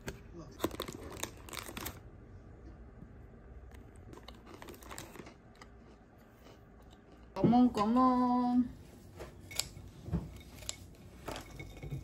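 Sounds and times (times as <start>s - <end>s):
plastic wrappers crinkling: 0.0s - 2.1s, 4.1s - 5.7s.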